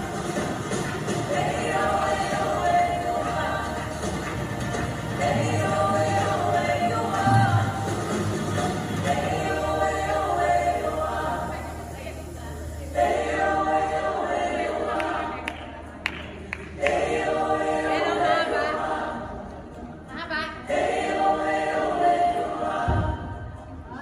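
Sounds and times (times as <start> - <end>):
choir singing: 0.0 - 24.0.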